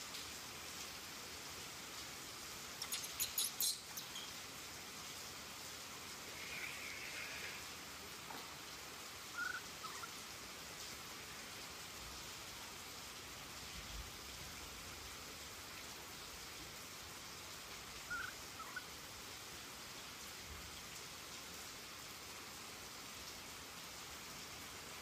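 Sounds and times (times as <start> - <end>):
steady rain falling: 0.0 - 25.0
high chirps: 2.8 - 4.4.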